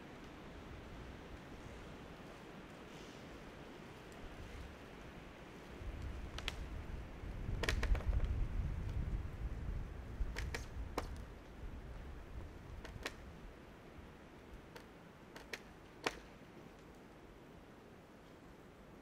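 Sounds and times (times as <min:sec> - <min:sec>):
sharp clicks and snaps: 0:06.0 - 0:06.7, 0:07.5 - 0:09.0, 0:10.3 - 0:11.3, 0:12.8 - 0:13.2, 0:14.7 - 0:17.0.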